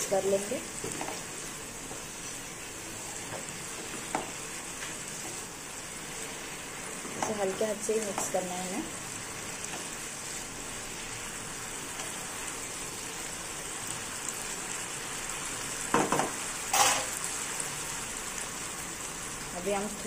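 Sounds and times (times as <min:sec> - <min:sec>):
gravy sizzling in a pan: 0:00.0 - 0:20.0
wooden spatula stirring: 0:00.8 - 0:05.5, 0:06.2 - 0:11.2.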